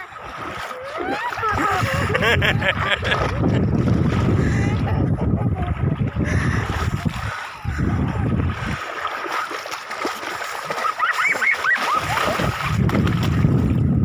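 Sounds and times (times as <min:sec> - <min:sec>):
wind on microphone: 0:00.0 - 0:08.9, 0:11.9 - 0:14.0
child splashing in water: 0:00.0 - 0:13.8
child squealing: 0:10.9 - 0:12.2.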